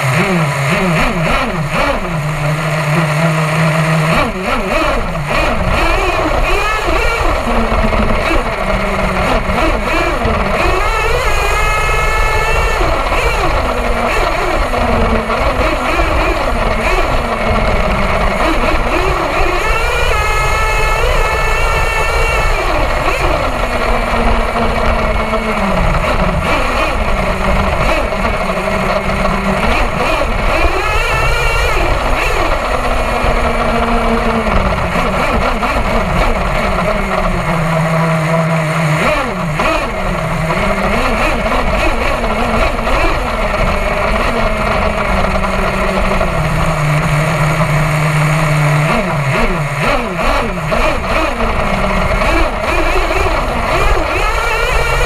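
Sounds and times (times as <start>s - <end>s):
model engine revving: 0.0s - 55.0s.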